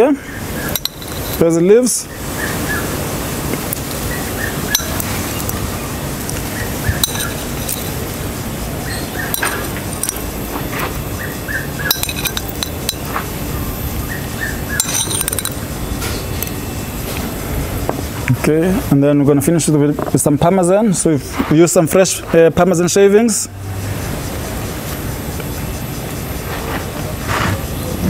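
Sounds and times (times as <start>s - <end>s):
steady background hiss: 0.0s - 28.0s
metal tweezers clinking on porcelain: 0.7s - 1.5s, 4.7s - 5.6s, 6.9s - 8.1s, 9.1s - 10.3s, 11.8s - 13.1s, 14.7s - 15.6s.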